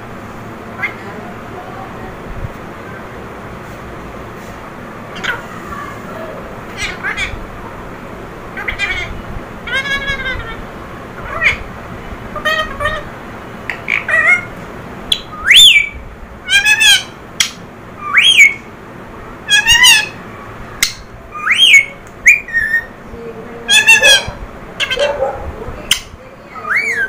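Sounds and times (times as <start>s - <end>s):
parakeet squawking calls: 5.1s - 7.5s, 8.5s - 11.7s, 12.4s - 13.1s, 13.7s - 14.6s, 15.3s - 18.7s, 19.4s - 20.2s, 20.8s - 23.0s, 23.7s - 25.3s
parakeet whistling: 15.1s - 18.7s, 19.5s - 20.2s, 20.8s - 23.0s, 25.9s - 27.0s.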